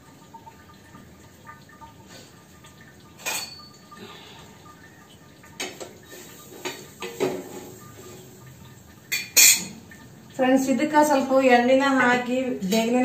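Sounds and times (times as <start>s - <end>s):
steel utensils clinking: 3.2s - 3.9s, 9.1s - 9.8s.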